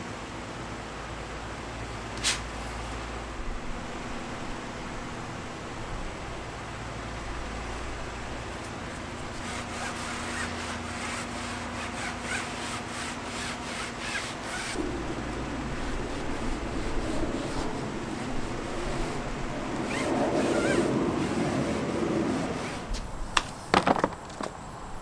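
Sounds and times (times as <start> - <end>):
low background hum: 0.0 - 25.0
pad rubbing on surface: 8.9 - 14.8, 15.7 - 23.0.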